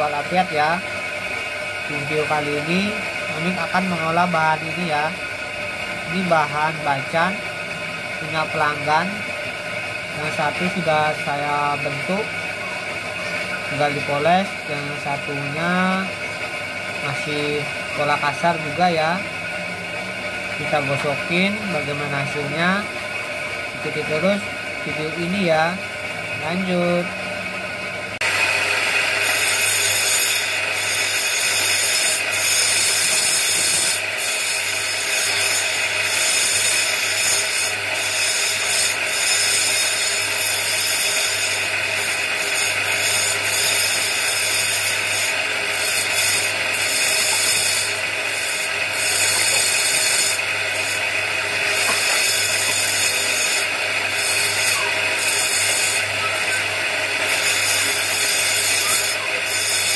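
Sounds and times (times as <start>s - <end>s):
bench grinder motor hum: 0.0s - 59.9s
stone grinding rasp: 29.2s - 59.9s.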